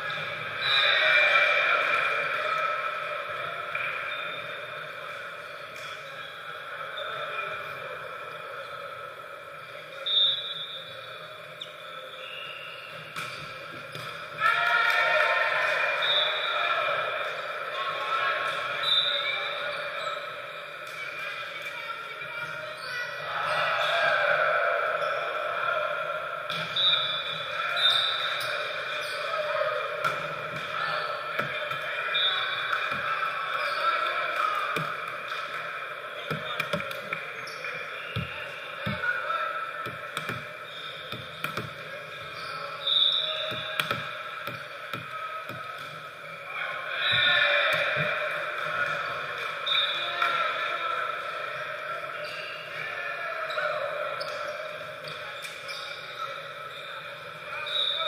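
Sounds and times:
players' voices and chatter: 0:00.0 - 0:58.0
referee's whistle blast: 0:16.0 - 0:16.6, 0:26.6 - 0:28.5, 0:42.4 - 0:43.7
ball bouncing on hardwood floor: 0:41.1 - 0:41.8, 0:43.5 - 0:45.7.

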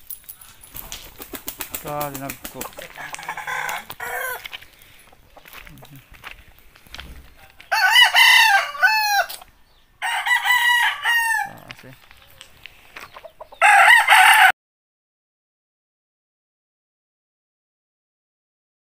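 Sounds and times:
roosters crowing: 0:02.6 - 0:06.0, 0:07.1 - 0:11.9, 0:13.1 - 0:14.5.

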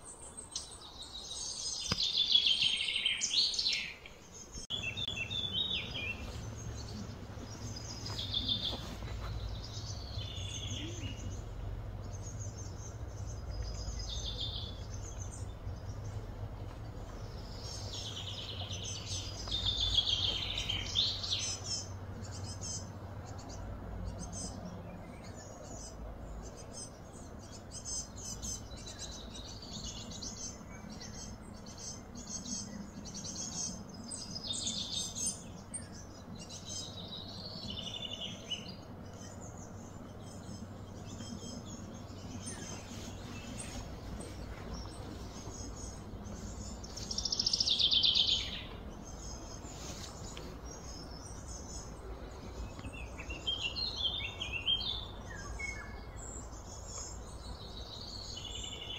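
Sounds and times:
birds chirping and calling: 0:00.0 - 0:58.9
steady low hum: 0:04.3 - 0:58.9.

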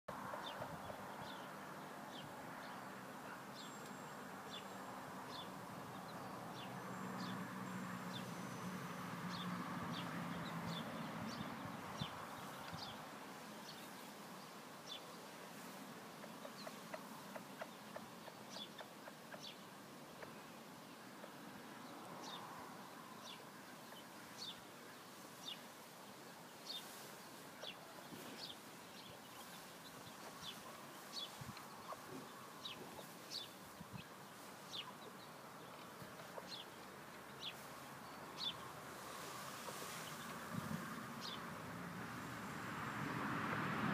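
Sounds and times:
chicks peeping: 0:16.2 - 0:20.3, 0:27.6 - 0:37.7.

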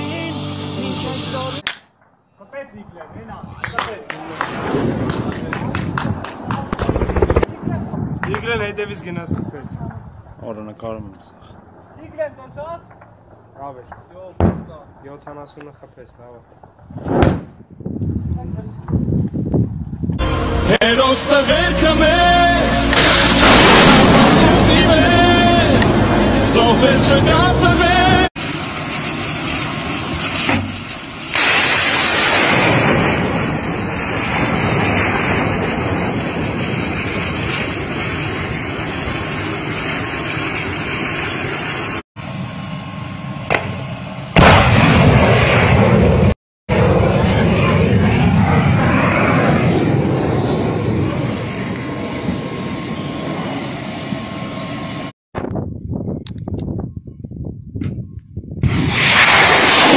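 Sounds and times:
sharp cracks: 0:01.6 - 0:02.2, 0:03.8 - 0:08.5
missile rocket motor rushing: 0:06.7 - 0:07.6, 0:58.6 - 0:59.9.

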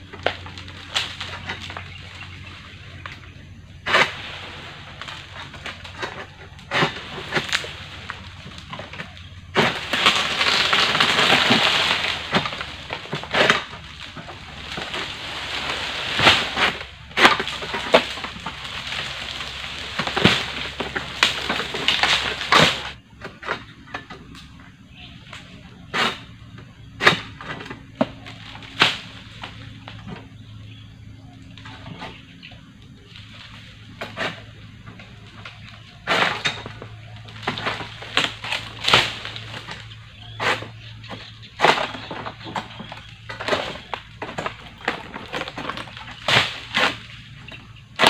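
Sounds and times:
blade cracking through frond stalks: 0:00.1 - 0:23.0, 0:27.0 - 0:30.2, 0:33.0 - 0:48.0
frond rustling and tearing: 0:03.9 - 0:23.0, 0:33.0 - 0:40.8.

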